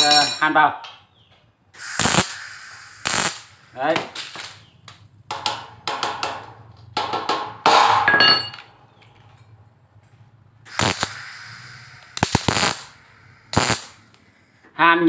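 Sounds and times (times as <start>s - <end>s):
steel pieces clinking on metal: 0.0s - 0.6s, 8.1s - 8.7s
short noisy burst into hiss: 1.8s - 4.6s, 10.7s - 14.0s.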